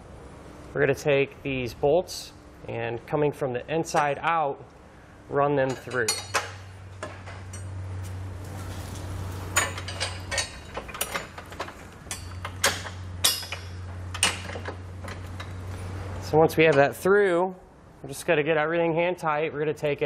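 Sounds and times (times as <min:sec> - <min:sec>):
steady low hum: 0:00.0 - 0:20.0
steel bolts clinking against plates: 0:05.7 - 0:07.7, 0:09.5 - 0:15.6.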